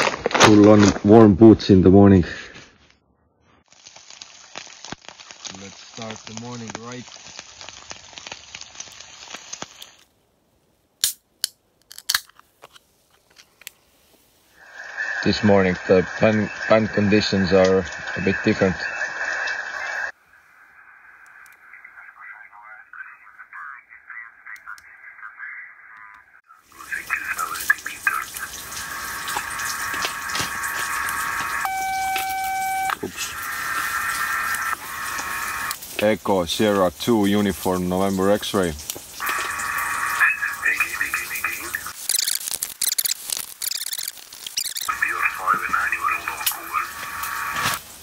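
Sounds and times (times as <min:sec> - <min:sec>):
eggs and bacon sizzling in a pan: 0:03.6 - 0:10.0, 0:26.7 - 0:40.9, 0:41.6 - 0:45.3, 0:46.0 - 0:48.0
sharp clicks and snaps: 0:11.0 - 0:13.8, 0:41.9 - 0:45.7
radio whistling tones: 0:14.6 - 0:35.8, 0:39.2 - 0:47.8
fragments of radio voices: 0:14.6 - 0:47.9
radio static: 0:14.6 - 0:48.0.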